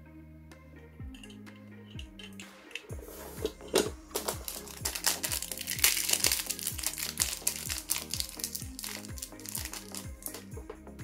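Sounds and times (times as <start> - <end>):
background music with steady beat: 0.0 - 11.0
plastic bag crinkling: 3.4 - 10.4.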